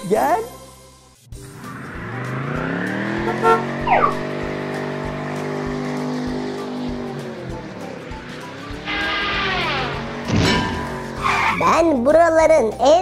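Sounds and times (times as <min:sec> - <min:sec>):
downward sliding tone: 0:01.4 - 0:04.4, 0:08.7 - 0:11.6
race car engine revving: 0:01.4 - 0:12.0.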